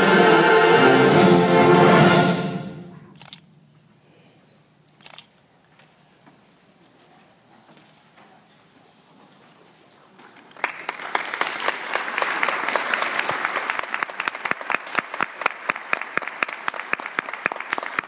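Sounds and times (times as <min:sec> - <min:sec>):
audience applauding: 0:10.4 - 0:18.0.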